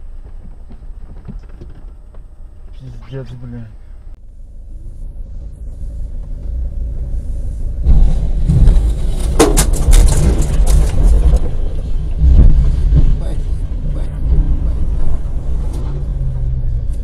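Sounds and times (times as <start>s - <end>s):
low vehicle rumble: 0.0s - 17.0s
sharp clattering knocks: 7.9s - 11.6s.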